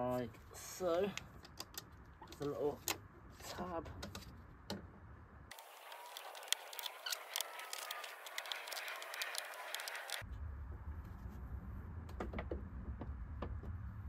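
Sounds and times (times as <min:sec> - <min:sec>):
plastic clicks and rustling: 0:05.5 - 0:10.2
tiny crackles: 0:05.5 - 0:10.2.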